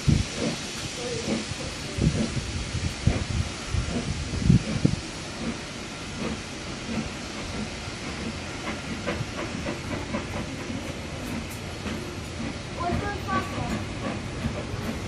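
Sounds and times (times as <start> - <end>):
steam train hiss and rumble: 0.0 - 15.0
light rail clicks: 5.4 - 15.0.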